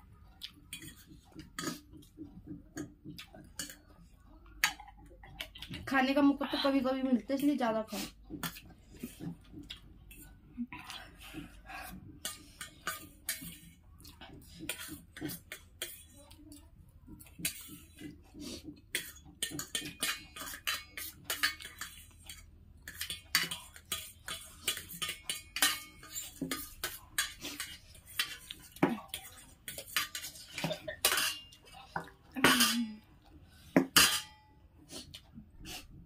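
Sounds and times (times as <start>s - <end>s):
forks clinking on steel plates: 19.0s - 31.6s, 32.4s - 32.9s, 33.8s - 34.5s.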